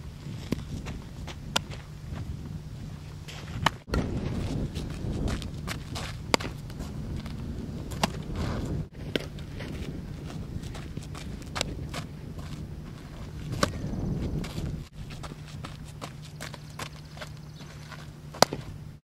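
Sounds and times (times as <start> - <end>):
steady low rumble: 0.0 - 19.0
softball smacks: 6.3 - 6.7, 18.4 - 18.8
footsteps on turf: 8.0 - 18.7.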